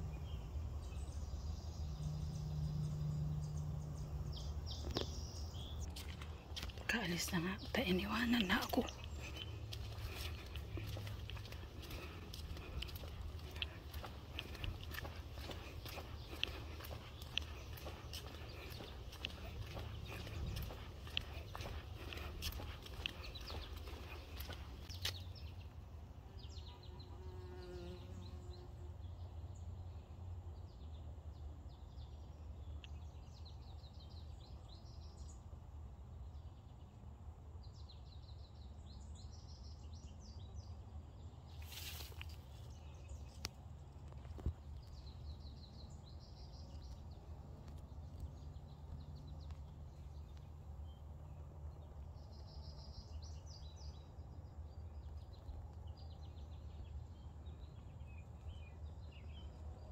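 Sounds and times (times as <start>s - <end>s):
bumblebee buzzing: 26.8s - 28.5s.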